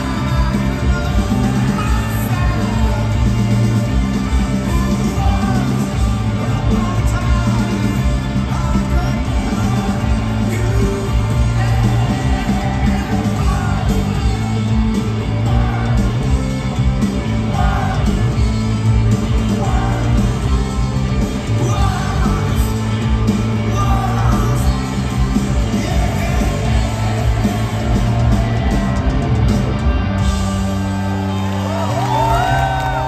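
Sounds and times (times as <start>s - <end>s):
man singing: 0.0s - 3.6s, 4.4s - 14.6s, 21.4s - 27.3s
electric guitars: 0.0s - 33.0s
rock band playing live: 0.0s - 33.0s.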